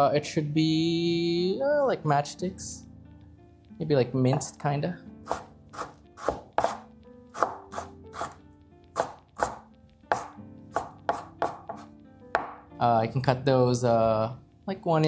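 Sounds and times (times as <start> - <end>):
knife chopping on cutting board: 5.2 - 12.6.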